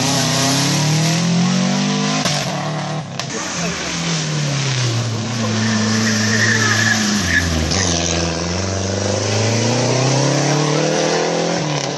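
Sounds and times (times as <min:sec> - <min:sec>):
car engine revving: 0:00.0 - 0:11.9.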